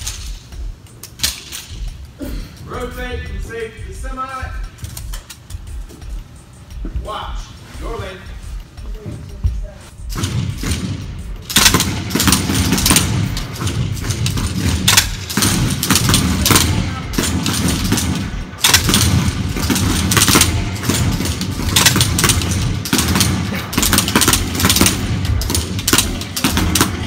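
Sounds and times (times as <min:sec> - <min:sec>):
air rifle shots: 0:10.0 - 0:27.0.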